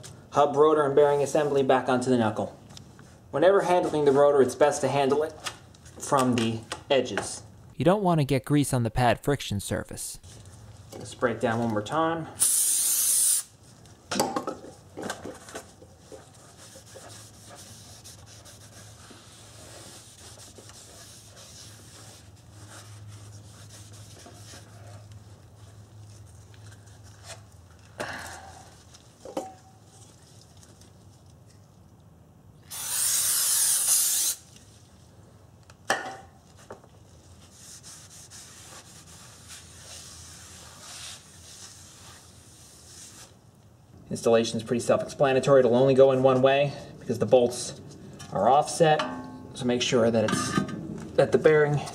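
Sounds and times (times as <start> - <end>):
aerosol spray hiss: 12.4 - 13.5, 32.7 - 34.4.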